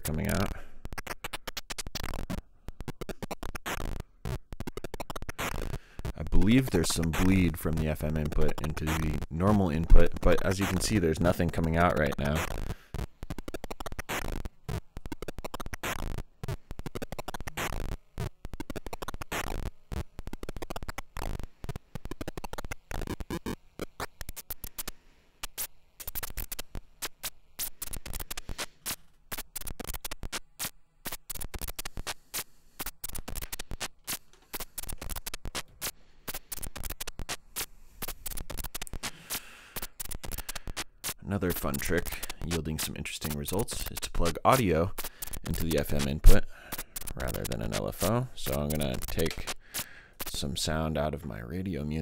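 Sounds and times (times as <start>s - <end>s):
crackling clicks and stuttering noise: 0.0s - 52.0s.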